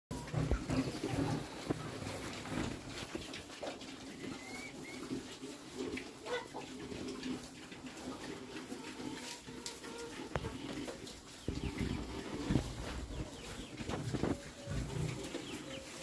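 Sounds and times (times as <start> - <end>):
crunching of eating: 0.1 - 16.0
piglets grunting: 0.2 - 2.2.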